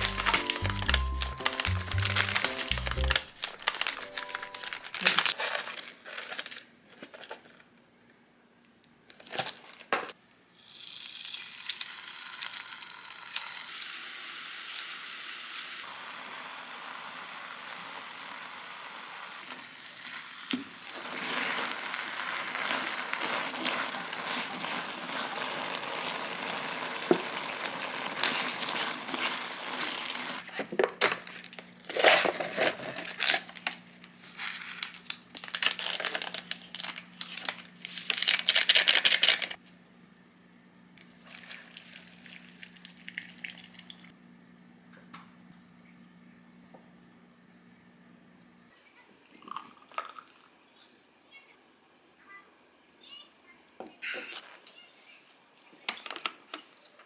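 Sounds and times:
paper lid peeled crinkling: 0:00.0 - 0:07.6, 0:28.0 - 0:39.6
bags crinkling: 0:00.0 - 0:07.7, 0:09.1 - 0:10.0, 0:20.9 - 0:39.6, 0:41.0 - 0:44.0
food sizzling in a pan: 0:10.5 - 0:30.4.

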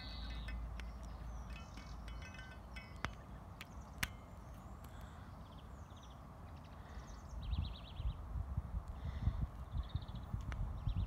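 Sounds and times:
low outdoor rumble: 0:00.0 - 0:05.8
small birds chirping and trilling: 0:00.0 - 0:08.3, 0:08.9 - 0:11.0.

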